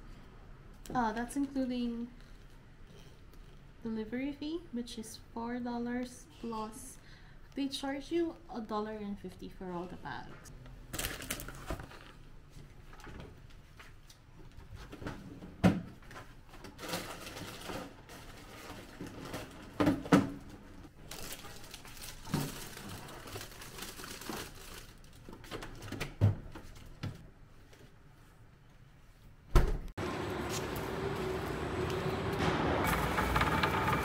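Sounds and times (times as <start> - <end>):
packaging rustling: 11.0 - 12.2, 21.0 - 25.9.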